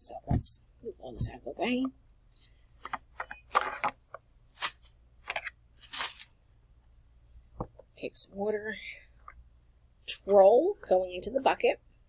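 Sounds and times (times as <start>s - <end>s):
plastic wrap and foil crinkling: 4.5s - 6.4s.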